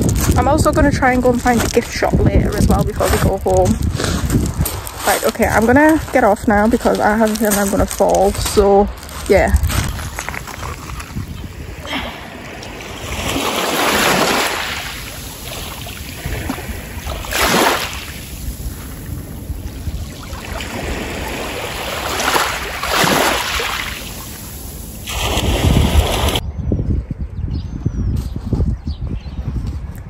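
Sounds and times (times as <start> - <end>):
waves washing over pebble shore: 12.3 - 26.4.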